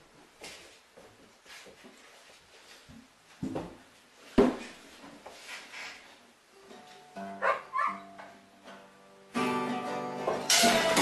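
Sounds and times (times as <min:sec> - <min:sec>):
acoustic guitar notes: 0:06.5 - 0:11.0
strummed guitar chord: 0:06.7 - 0:11.0.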